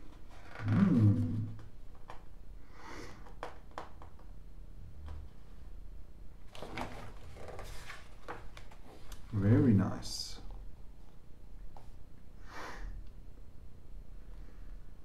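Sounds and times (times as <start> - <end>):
magazine pages rustling: 6.5 - 9.3.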